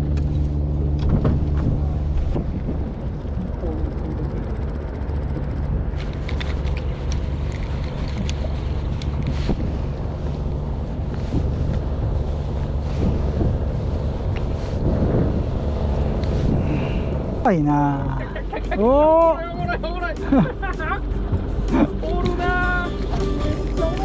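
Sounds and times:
wind buffeting microphone: 0:00.0 - 0:22.8
boat engine running: 0:00.0 - 0:24.0
small clicks and ticks: 0:04.4 - 0:09.4.

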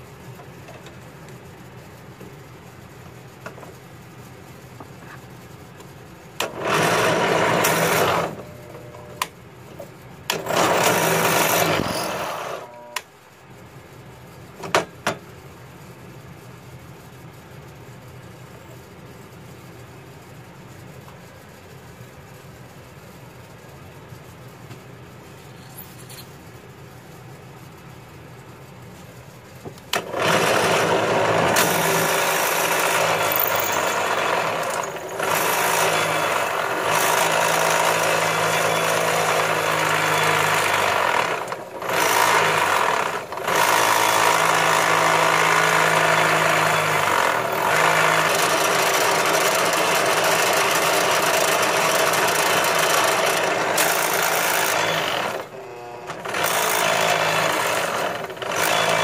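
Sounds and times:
drill press cutting metal: 0:06.4 - 0:09.0, 0:10.3 - 0:13.0, 0:29.9 - 0:59.0.

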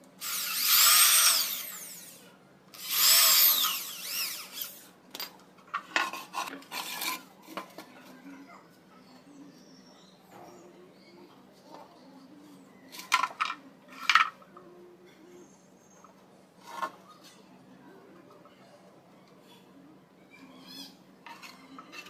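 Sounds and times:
electric drill boring into wood: 0:00.2 - 0:02.2, 0:02.8 - 0:04.8.

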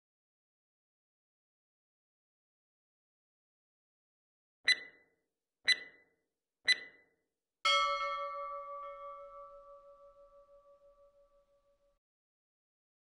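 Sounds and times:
short struck chime tones: 0:07.7 - 0:11.3
long ringing bell tone: 0:07.7 - 0:11.8.

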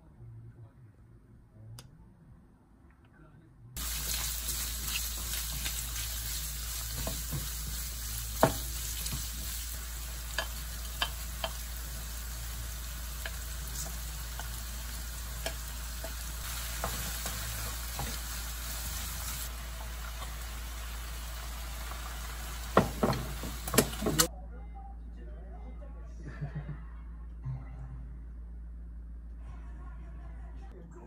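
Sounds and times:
food sizzling in a frying pan: 0:03.8 - 0:24.3.

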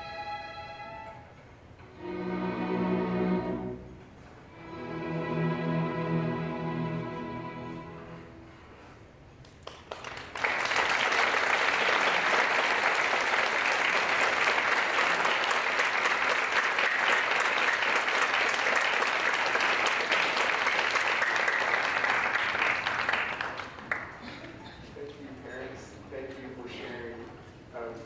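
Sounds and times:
audience applauding: 0:09.4 - 0:24.7.

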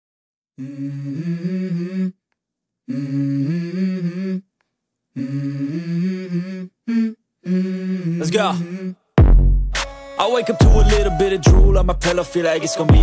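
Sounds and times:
person humming a melody: 0:00.6 - 0:02.2, 0:02.9 - 0:04.4, 0:05.2 - 0:09.0, 0:10.2 - 0:13.0.

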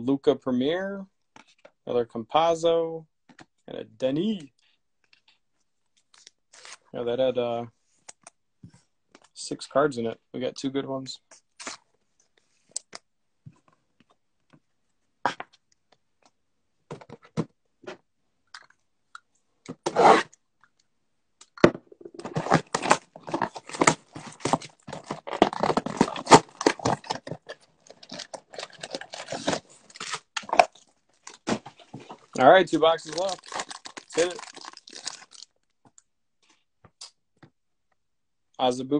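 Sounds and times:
packaging rustling: 0:22.1 - 0:35.6
box being torn open: 0:22.2 - 0:32.4, 0:33.0 - 0:35.4.

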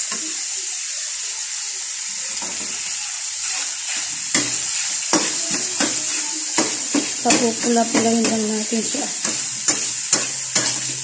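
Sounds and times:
meat sizzling in a wok: 0:00.0 - 0:11.0
metal spatula scraping a pan: 0:02.3 - 0:11.0.

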